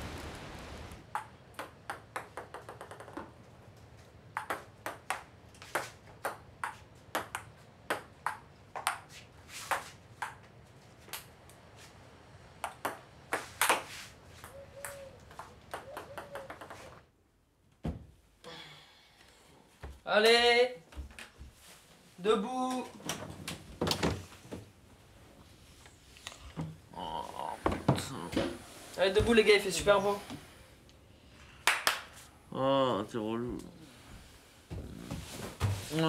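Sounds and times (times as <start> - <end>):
ping-pong ball clicking: 1.1 - 3.2, 4.4 - 5.2.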